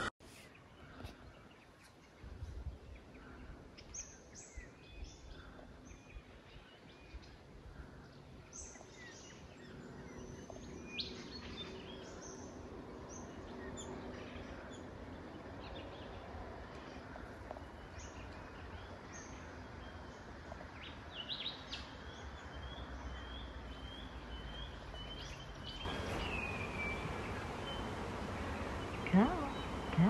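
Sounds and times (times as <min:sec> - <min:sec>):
low background noise: 0:00.0 - 0:30.0
small birds chirping: 0:00.0 - 0:30.0
faint steady low hum: 0:25.8 - 0:30.0.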